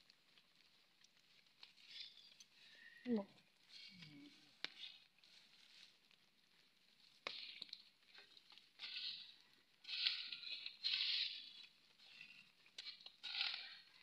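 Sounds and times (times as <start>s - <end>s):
digging tool scraping earth: 8.8s - 13.9s.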